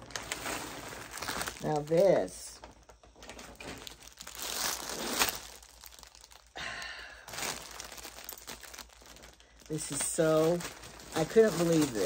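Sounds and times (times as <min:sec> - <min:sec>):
plastic packaging crinkling: 0:00.0 - 0:12.0.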